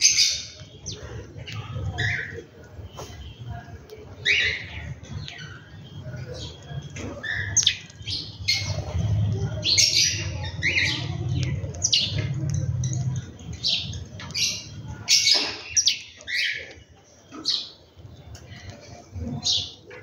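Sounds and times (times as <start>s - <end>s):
birds chirping and squawking: 0.0s - 20.0s.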